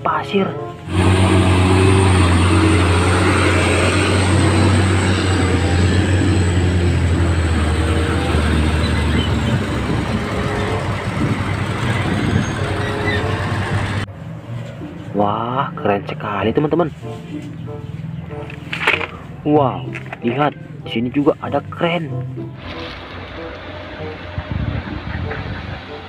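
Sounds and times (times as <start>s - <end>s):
diesel truck engine: 0.0s - 26.0s
rushing noise: 0.8s - 14.6s.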